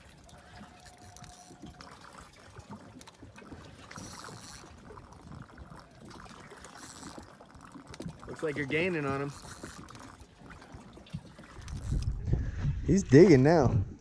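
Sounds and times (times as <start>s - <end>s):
water lapping against boat hull: 0.0s - 12.8s.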